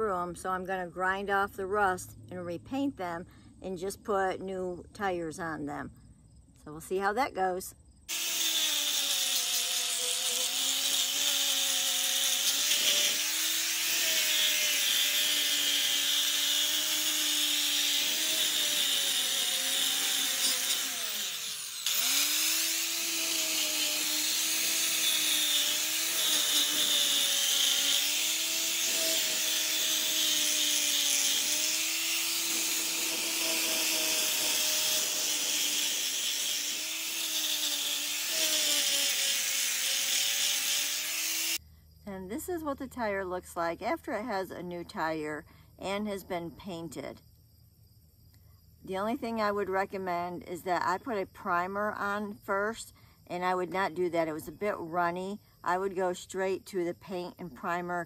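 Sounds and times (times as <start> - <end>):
angle grinder grinding metal: 8.1 - 41.6.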